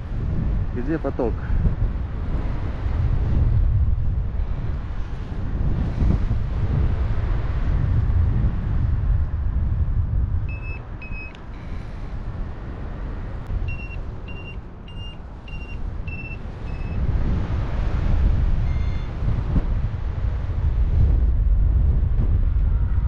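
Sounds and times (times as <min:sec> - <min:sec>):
wind rushing over microphone: 0:00.0 - 0:23.0
variometer beeping: 0:10.5 - 0:11.6, 0:13.6 - 0:17.0, 0:18.6 - 0:19.2.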